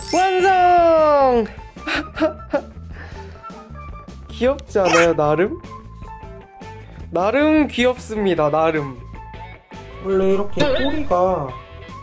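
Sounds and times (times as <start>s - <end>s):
brief voice sounds: 4.8s - 5.2s.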